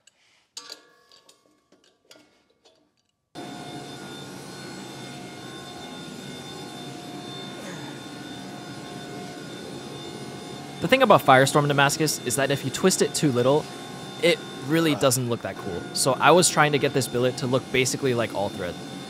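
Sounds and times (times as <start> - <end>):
metal clinks and knocks: 0.0 - 3.3
workshop machinery roaring: 3.4 - 19.0.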